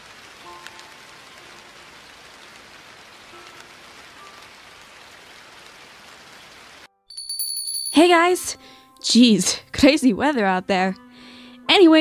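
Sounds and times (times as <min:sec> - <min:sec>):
heavy rain: 0:00.0 - 0:06.9.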